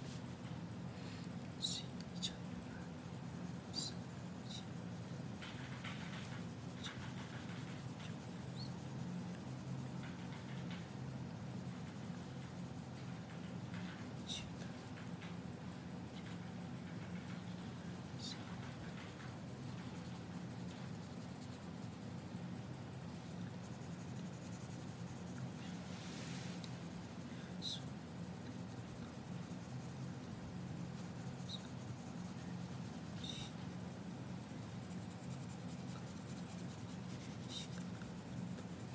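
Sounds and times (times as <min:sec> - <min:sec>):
steady low hum: 0:00.0 - 0:38.9
pencil scratching on paper: 0:23.1 - 0:38.9.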